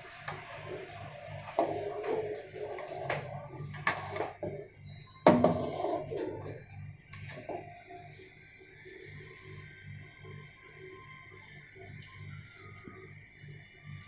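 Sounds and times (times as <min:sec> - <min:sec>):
metal spatula scraping a wok: 0:00.6 - 0:04.6, 0:05.3 - 0:06.6.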